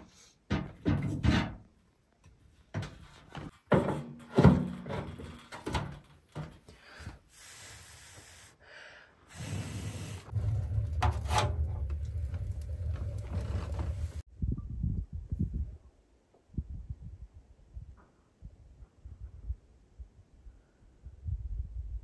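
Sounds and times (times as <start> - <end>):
wood being moved in stove: 9.7 - 14.2
low steady rumble: 10.3 - 14.3.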